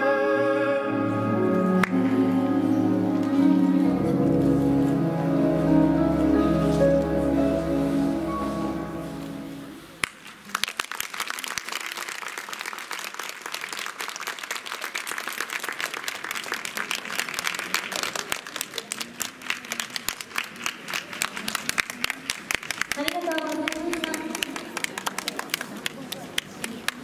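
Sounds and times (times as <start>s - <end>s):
recorded music held notes: 0.0s - 10.0s
audience applause: 10.0s - 27.0s.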